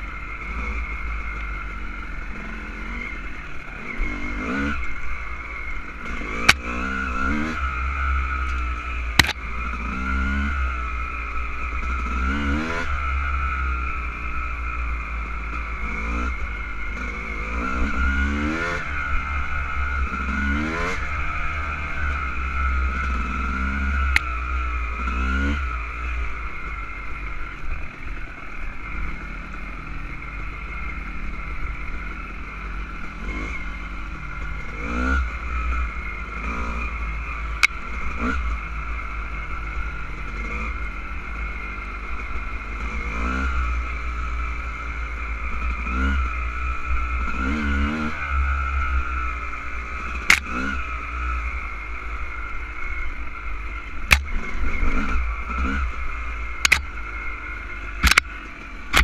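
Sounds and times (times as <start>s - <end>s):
dirt bike engine revving: 0.0s - 59.0s
sharp clicks: 9.2s - 9.4s, 50.2s - 50.5s, 54.1s - 54.4s, 56.6s - 57.0s, 58.0s - 59.0s.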